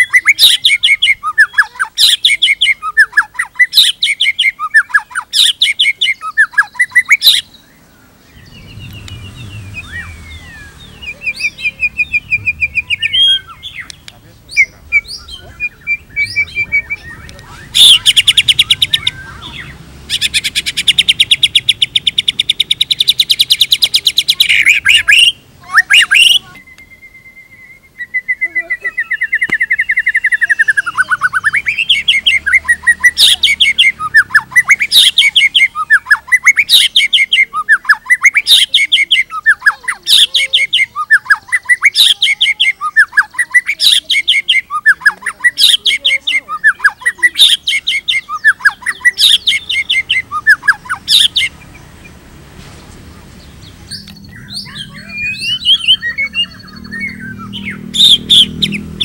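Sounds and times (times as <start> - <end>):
bird chirps and whistles: 0.0 - 7.6, 8.3 - 51.7, 53.9 - 59.0
bird singing: 0.0 - 59.0.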